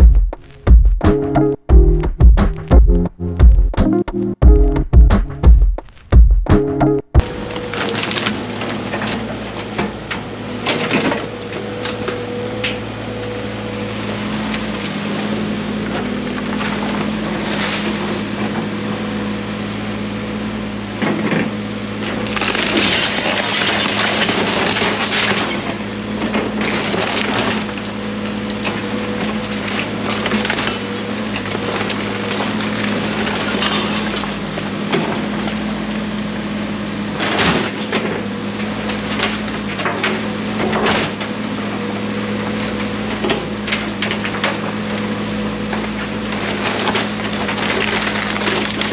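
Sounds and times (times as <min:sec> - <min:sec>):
diesel excavator engine running: 0:00.0 - 0:48.9
timber cracking and splintering: 0:07.2 - 0:09.1, 0:46.3 - 0:48.9.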